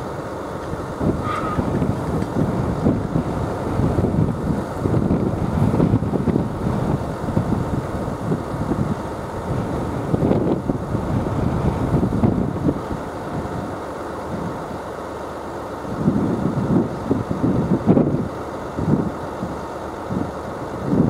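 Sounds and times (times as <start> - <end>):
wind buffeting microphone: 0.0 - 14.9, 15.8 - 21.0.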